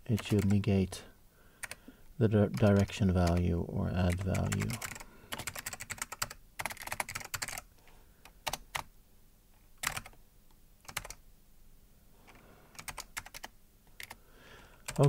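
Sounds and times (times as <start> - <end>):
computer keyboard typing: 0.2 - 0.6, 1.6 - 1.8, 2.4 - 8.9, 9.8 - 10.2, 10.8 - 11.2, 12.3 - 14.2, 14.8 - 15.0.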